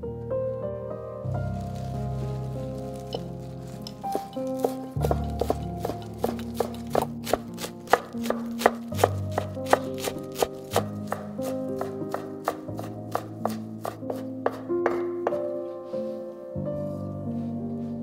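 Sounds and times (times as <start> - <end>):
knife chopping on cutting board: 3.9 - 15.5.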